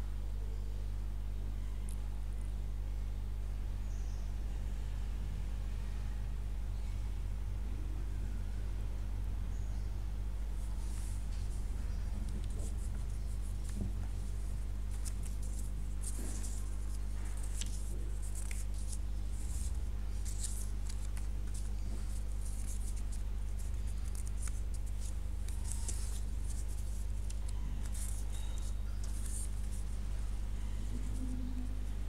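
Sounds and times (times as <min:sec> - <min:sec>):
electrical hum: 0:00.0 - 0:32.0
scratching and rustling: 0:10.7 - 0:32.0.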